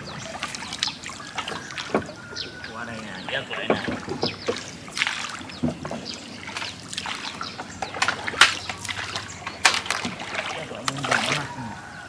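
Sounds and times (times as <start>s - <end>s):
water splashing and dripping: 0.0s - 11.8s
sharp knocks on wooden boat: 1.4s - 2.7s, 3.3s - 6.7s.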